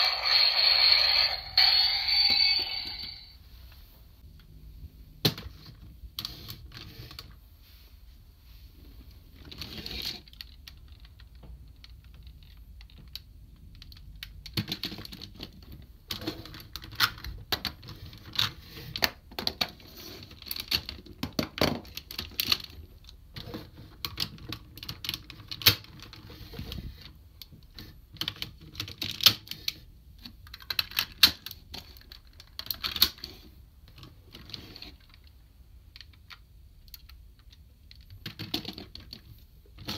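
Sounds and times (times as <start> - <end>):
plastic toy parts clicking: 30.2 - 33.3.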